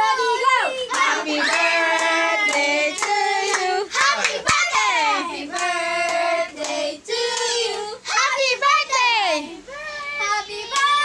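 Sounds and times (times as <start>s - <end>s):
hand claps: 0.9s - 4.7s, 10.7s - 11.0s.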